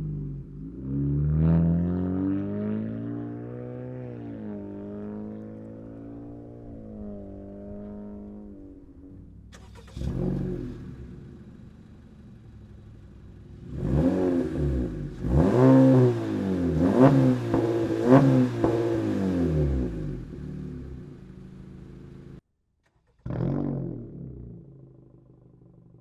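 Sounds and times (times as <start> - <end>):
car engine revving from idle: 9.5 - 22.4.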